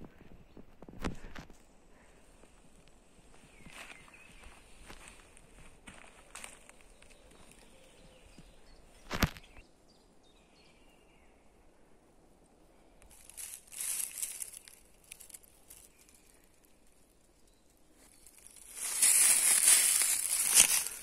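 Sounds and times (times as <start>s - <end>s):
footsteps crunching dry leaves: 3.7s - 7.6s, 13.0s - 16.5s, 18.0s - 21.0s.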